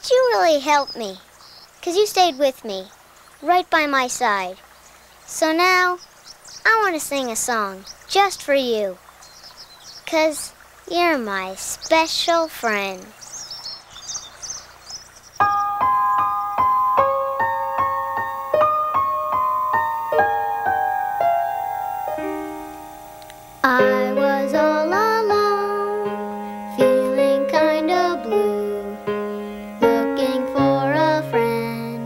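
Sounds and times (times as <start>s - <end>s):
birds chirping faintly: 0.0s - 32.0s
keyboard playing children's song: 15.4s - 32.0s.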